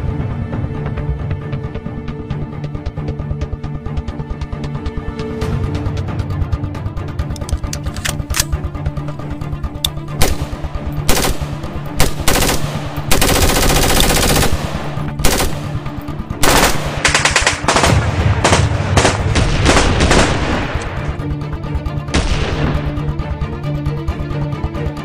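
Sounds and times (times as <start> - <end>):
automatic gunfire: 10.2 - 15.8, 16.4 - 20.6.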